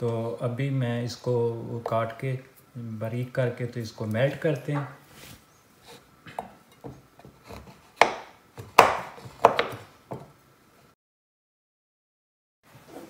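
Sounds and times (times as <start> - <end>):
knife chopping on cutting board: 6.3 - 10.3.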